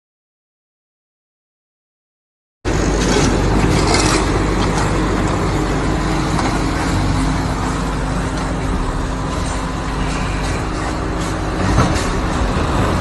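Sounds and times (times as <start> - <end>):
heavy engine rumbling: 2.7 - 13.0.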